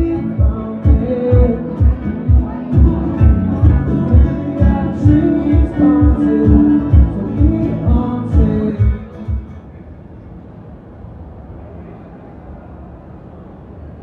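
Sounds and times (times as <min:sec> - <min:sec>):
man singing: 0:00.0 - 0:09.5
steady low beat: 0:00.0 - 0:09.6
acoustic guitar: 0:00.0 - 0:09.8.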